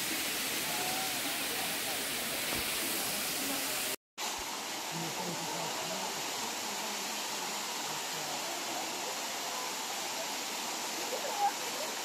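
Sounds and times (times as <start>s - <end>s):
waterfall rushing over rocks: 0.0s - 12.0s
faint voices: 4.8s - 12.0s.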